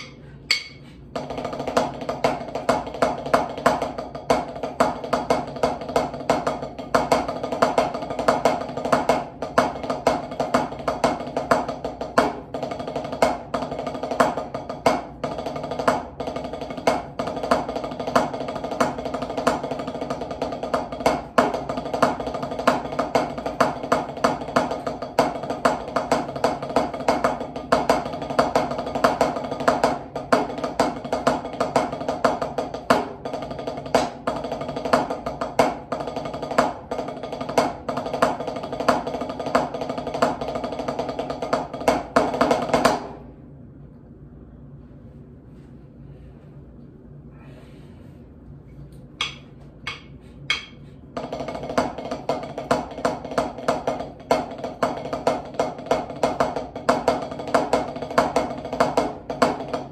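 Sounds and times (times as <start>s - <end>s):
steady pitched ring: 0.0s - 1.0s
drumsticks on practice pad: 0.0s - 1.1s, 48.9s - 52.1s
drumstick click: 49.2s - 50.8s.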